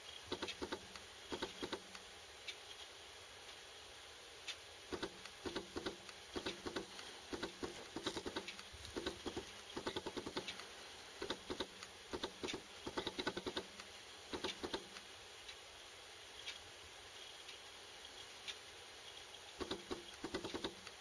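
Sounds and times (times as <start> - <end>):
quick clicks and taps: 4.9 - 15.1.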